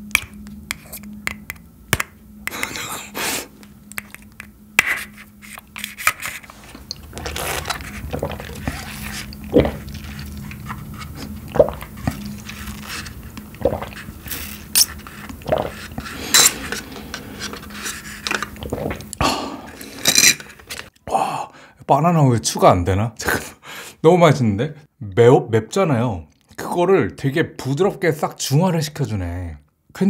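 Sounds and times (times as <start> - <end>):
person sucking through a straw: 2.4 - 4.2, 5.0 - 20.2
person gulping: 6.9 - 17.3, 18.5 - 20.0.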